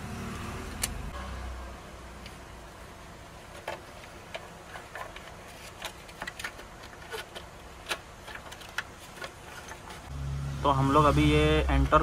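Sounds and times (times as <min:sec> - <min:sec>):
plastic parts clicking and tapping: 0:03.5 - 0:10.0.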